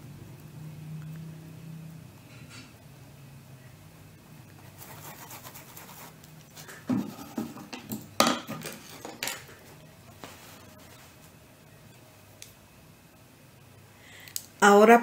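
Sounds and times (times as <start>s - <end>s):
paintbrush scratching on fabric: 4.6s - 7.4s.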